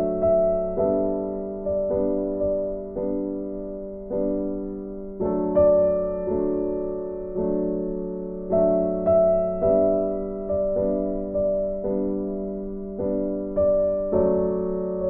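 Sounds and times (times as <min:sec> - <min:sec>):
slow gentle piano: 0:00.0 - 0:15.0.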